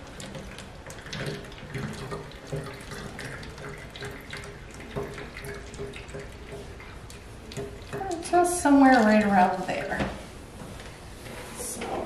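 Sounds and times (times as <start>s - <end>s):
water pouring into bottle: 0.0s - 8.3s.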